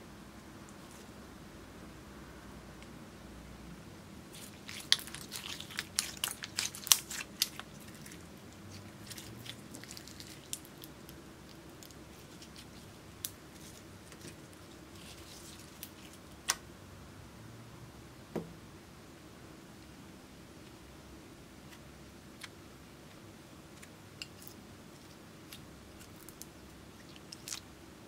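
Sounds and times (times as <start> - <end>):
soft knock: 18.3 - 18.6.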